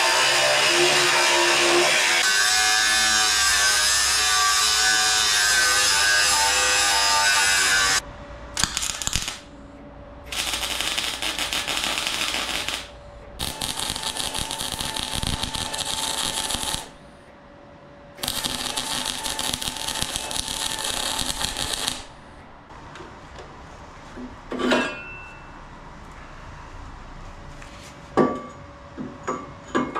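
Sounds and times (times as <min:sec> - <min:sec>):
welding arc crackling: 0:08.6 - 0:09.5, 0:10.3 - 0:17.0, 0:18.2 - 0:22.2.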